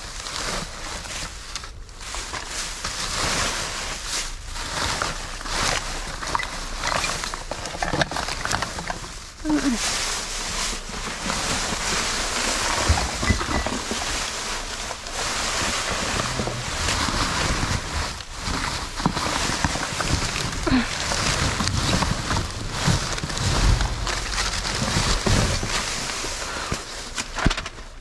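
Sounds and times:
plastic bags rustling: 0.0s - 28.0s.

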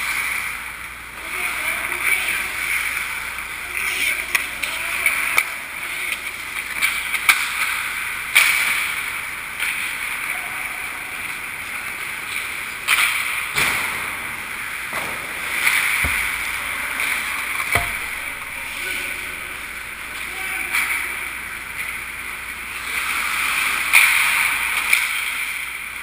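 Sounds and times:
sharp knocks: 16.0s - 16.8s, 17.6s - 20.1s.

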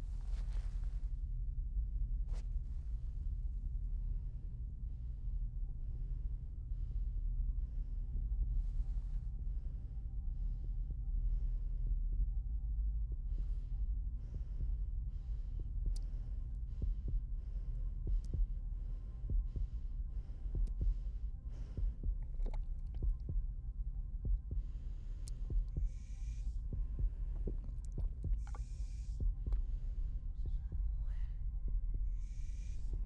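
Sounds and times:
deep rumble: 0.0s - 33.0s
heartbeat pulses: 0.0s - 33.0s.

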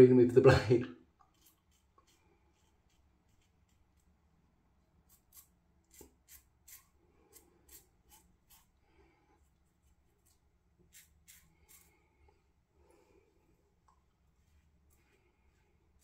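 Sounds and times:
razor scraping stubble: 1.2s - 4.1s, 5.0s - 8.8s, 9.8s - 12.0s.

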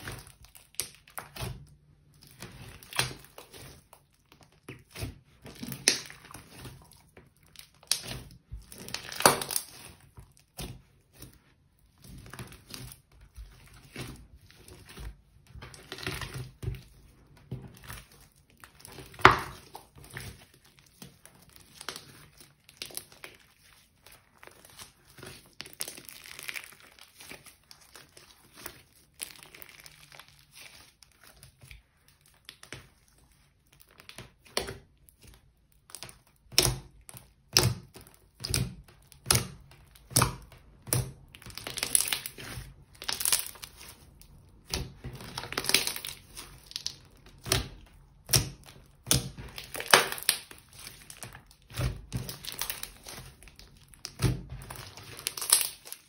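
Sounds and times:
slime squelching and crackling: 0.0s - 56.0s
sharp slime pops: 44.6s - 53.2s.

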